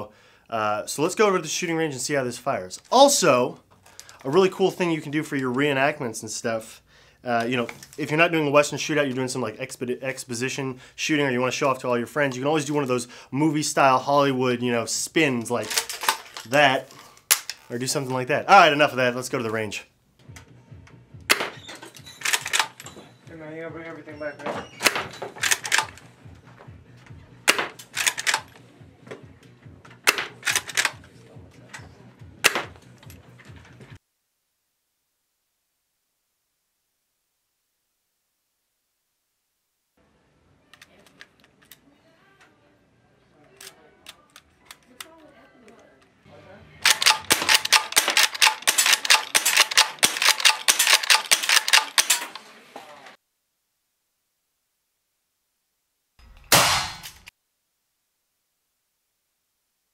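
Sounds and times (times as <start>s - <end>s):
airsoft rifle shots: 21.3s - 21.5s, 27.5s - 28.5s, 30.1s - 31.0s, 32.4s - 32.8s, 46.8s - 52.4s, 56.2s - 57.3s
rapid sharp clacks: 46.9s - 52.2s.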